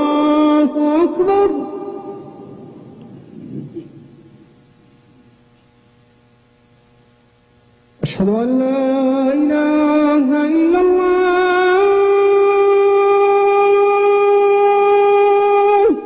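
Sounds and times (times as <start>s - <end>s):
man chanting call to prayer: 0.0s - 2.8s, 8.0s - 16.0s
low hum: 0.0s - 16.0s.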